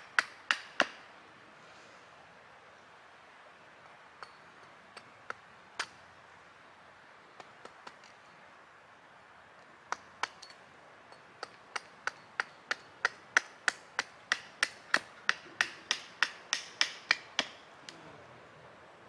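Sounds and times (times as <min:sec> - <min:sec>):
hatchet chopping wood: 0:00.0 - 0:01.0, 0:05.0 - 0:06.0, 0:09.9 - 0:10.5, 0:11.4 - 0:17.6.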